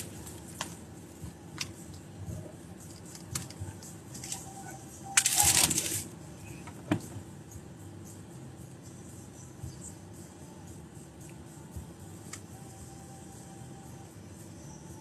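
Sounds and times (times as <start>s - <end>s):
car cabin hum: 0.0s - 7.4s.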